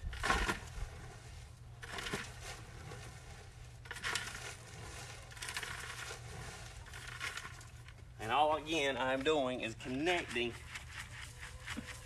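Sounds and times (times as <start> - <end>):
low steady rumble: 0.0 - 12.0
mulch rustling and crunching: 0.2 - 8.2.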